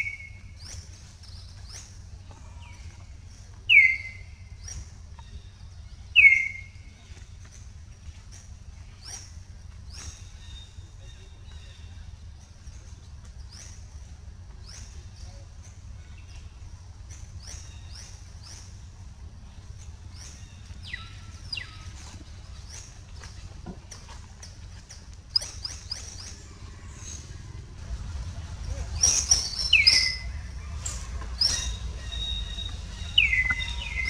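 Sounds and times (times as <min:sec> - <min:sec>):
low steady rumble: 0:00.0 - 0:34.0
monkeys squeaking: 0:08.2 - 0:10.7, 0:12.4 - 0:34.0.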